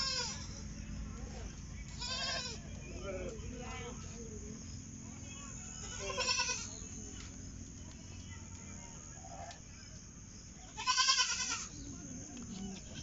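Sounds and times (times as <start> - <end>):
goat kid bleating: 0.0 - 0.4, 2.0 - 2.6, 5.8 - 6.8, 10.7 - 11.7.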